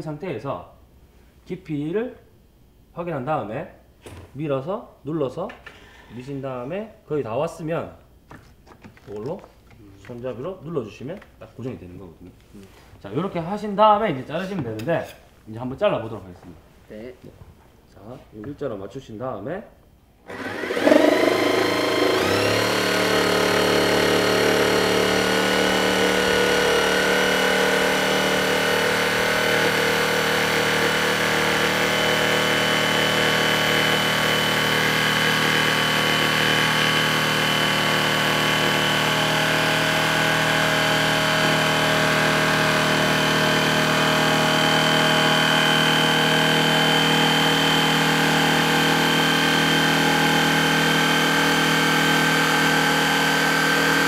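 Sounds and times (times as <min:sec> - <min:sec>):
electric jigsaw cutting wood: 0:20.3 - 0:54.0.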